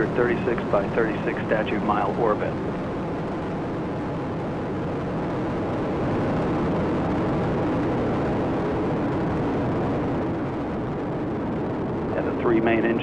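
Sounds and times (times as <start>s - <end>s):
deep rocket roar: 0.0s - 13.0s.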